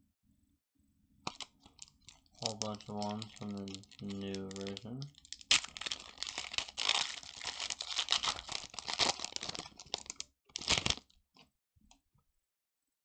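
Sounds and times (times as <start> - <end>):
foil wrapper crinkling: 1.3 - 11.1.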